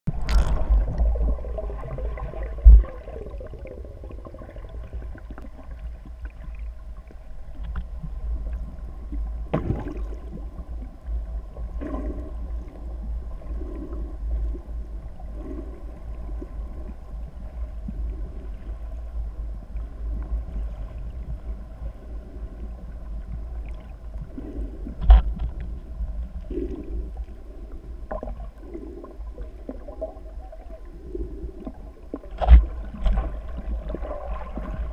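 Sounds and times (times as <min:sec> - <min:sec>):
muffled underwater rumble: 0:00.1 - 0:34.9.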